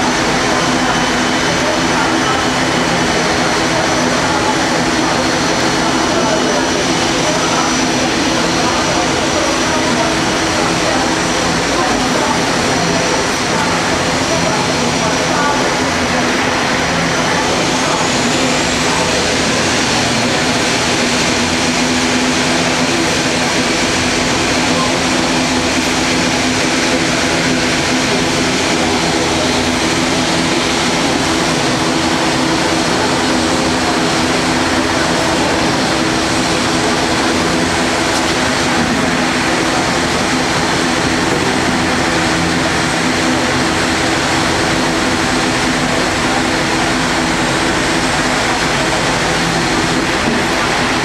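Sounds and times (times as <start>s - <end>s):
turboprop engines running: 0.0s - 51.0s.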